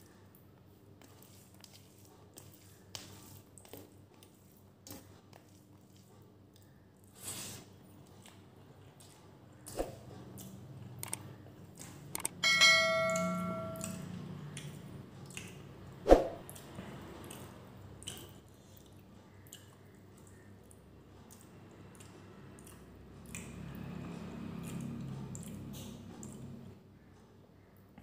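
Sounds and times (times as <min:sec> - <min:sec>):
chewing and wet mouth sounds: 0:01.0 - 0:12.3, 0:13.8 - 0:26.7
bell chime: 0:12.4 - 0:14.2.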